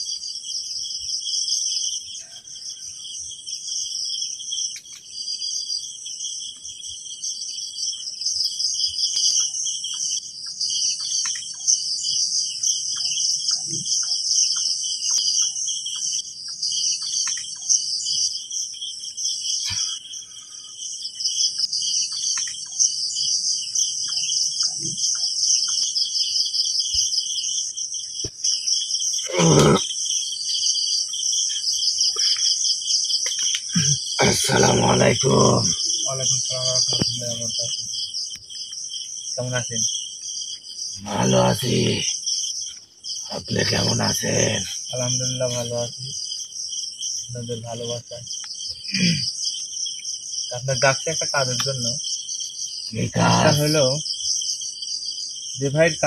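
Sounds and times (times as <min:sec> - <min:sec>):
crickets trilling: 0:00.0 - 0:56.0.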